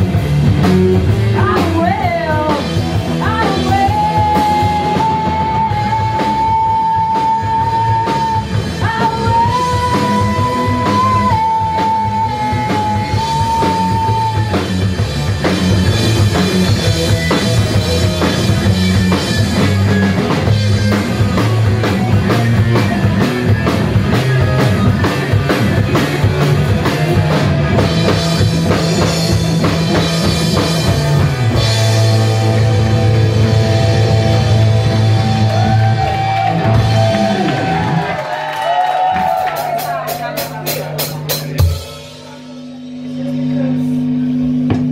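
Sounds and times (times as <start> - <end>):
distorted electric guitar: 0.0 - 38.2, 39.9 - 44.9
bass guitar: 0.0 - 44.9
drum kit: 0.0 - 44.9
rock band playing loud: 0.0 - 44.9
person singing: 1.4 - 14.8.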